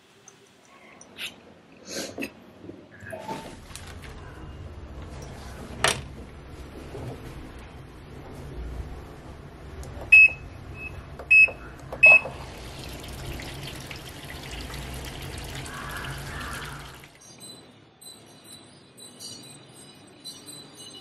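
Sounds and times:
washing machine control panel beeping: 9.9 - 13.1
water running into drum: 11.3 - 17.2.

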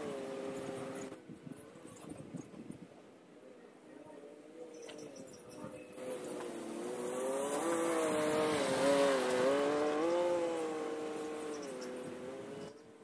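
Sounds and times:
vehicle engine under load: 0.0 - 2.4, 5.0 - 13.0.

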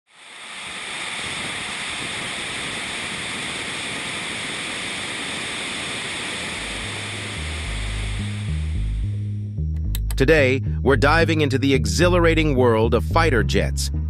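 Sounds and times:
jet afterburner roar: 0.1 - 9.3
deep bass music notes: 6.6 - 14.0.

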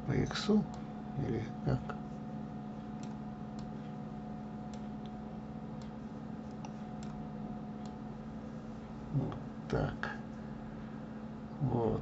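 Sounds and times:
computer mouse clicks: 3.0 - 3.8, 5.8 - 7.2.

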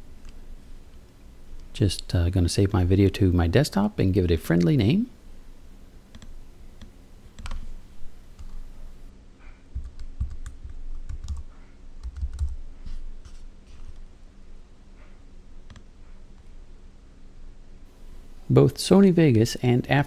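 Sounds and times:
keyboard typing: 6.1 - 7.7, 9.8 - 12.6.

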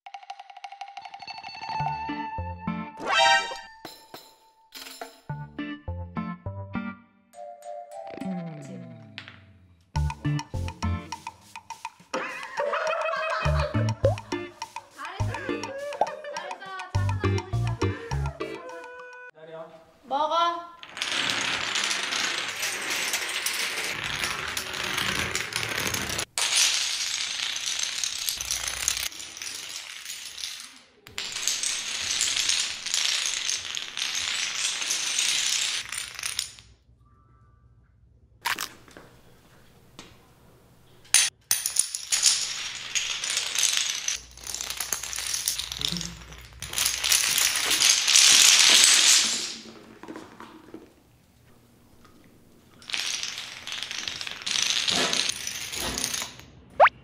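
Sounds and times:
dominoes toppling clatter: 14.1 - 18.0, 20.8 - 36.7, 41.5 - 50.8, 52.7 - 56.4.

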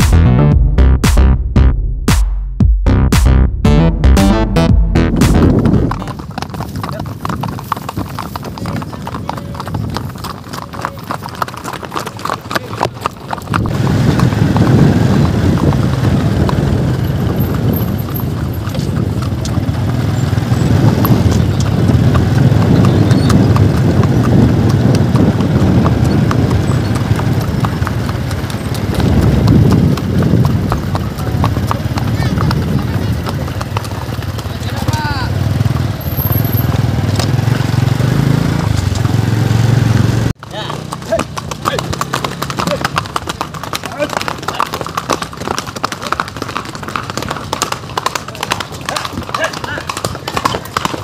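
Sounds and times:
horse hooves clip-clopping: 5.2 - 51.0.

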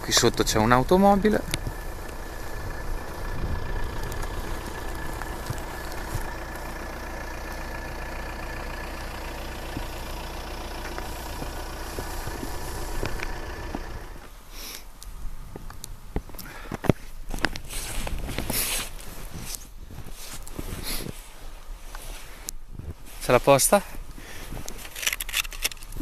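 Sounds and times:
engine running with low hum: 0.0 - 14.4.

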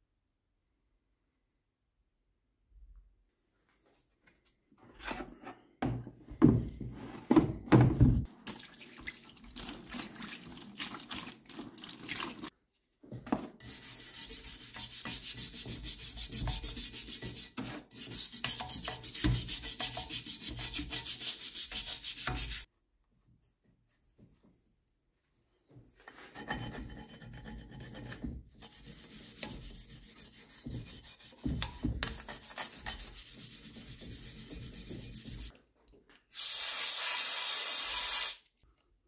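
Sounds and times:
stiff brush scrubbing wet metal: 13.6 - 22.7, 26.4 - 35.5.

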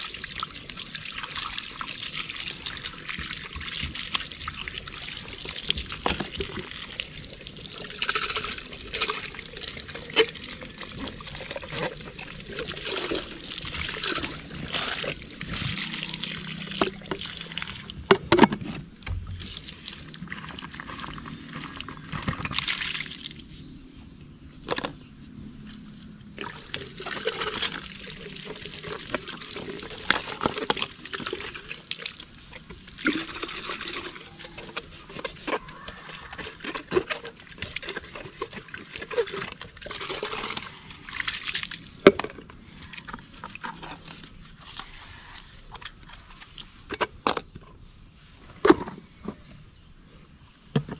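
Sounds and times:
water trickling from a tap: 0.0 - 18.0
plastic waterers knocking: 0.2 - 23.1, 26.4 - 44.9.

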